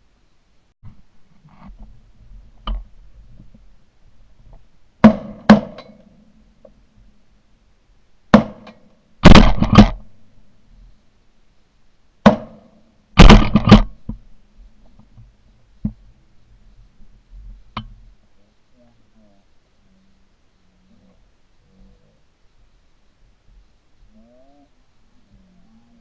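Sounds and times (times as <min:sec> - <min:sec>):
shotguns firing: 0:08.3 - 0:10.0, 0:13.2 - 0:14.0.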